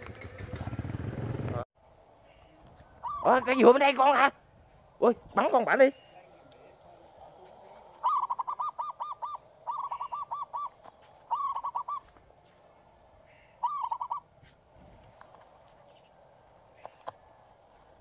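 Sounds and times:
bird calling: 0:02.2 - 0:04.4, 0:05.4 - 0:12.3, 0:13.2 - 0:14.4, 0:15.8 - 0:17.4.

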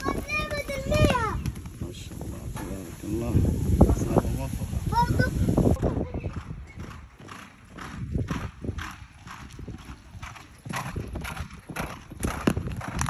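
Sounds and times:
horse hoofbeats on sand: 0:05.7 - 0:13.0.

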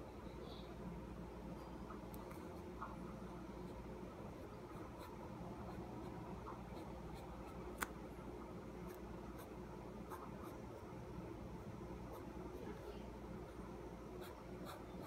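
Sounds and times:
steady low hum: 0:00.0 - 0:15.0
pen scratching on paper: 0:14.2 - 0:15.0.

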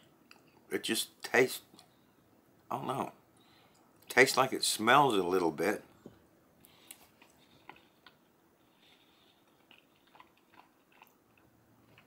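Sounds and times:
person chewing food: 0:06.6 - 0:12.0.

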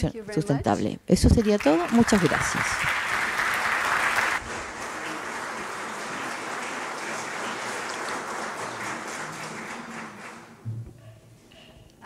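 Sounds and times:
audience applauding: 0:01.4 - 0:10.7.

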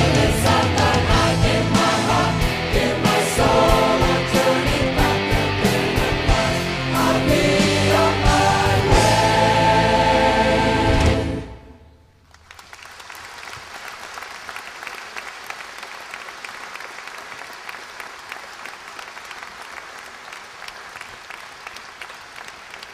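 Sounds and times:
choir and rock band chord: 0:00.0 - 0:11.9
audience applauding: 0:12.2 - 0:22.9.

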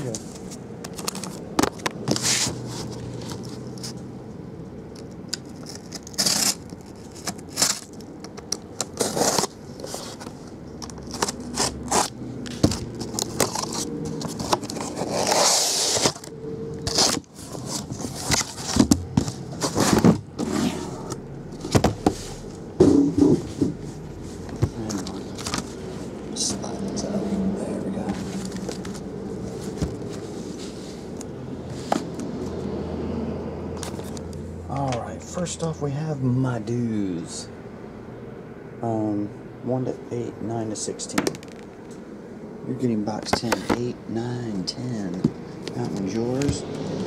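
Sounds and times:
cardboard scraping: 0:00.0 - 0:04.0, 0:05.4 - 0:26.7, 0:28.0 - 0:32.3.

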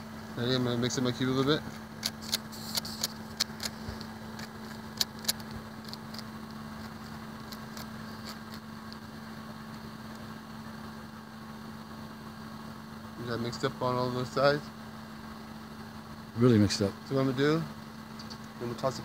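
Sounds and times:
puzzle cube clicking: 0:01.8 - 0:08.6.

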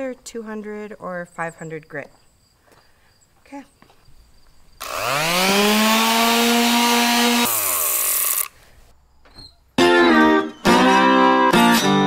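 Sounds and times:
electric orbital sander whine: 0:04.8 - 0:08.6
music: 0:09.8 - 0:12.0.

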